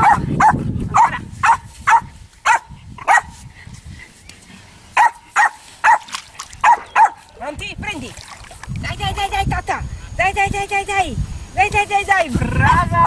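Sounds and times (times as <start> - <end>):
dog barking sharply: 0.0 - 3.3, 5.0 - 7.2.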